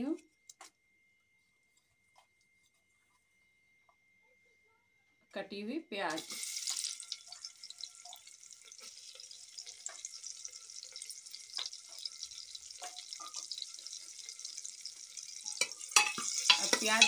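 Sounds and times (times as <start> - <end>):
onions sizzling in oil: 6.1 - 17.0.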